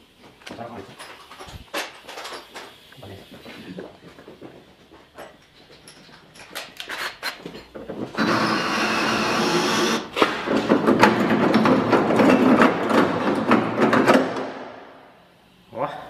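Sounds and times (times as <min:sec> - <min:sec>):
cordless drill boring into steel: 0:08.2 - 0:10.1
metal rattling and knocking: 0:10.2 - 0:14.6.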